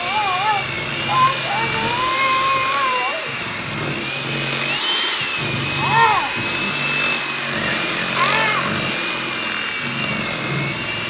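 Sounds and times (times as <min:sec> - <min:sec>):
electric hand mixer whining: 0:00.0 - 0:11.0.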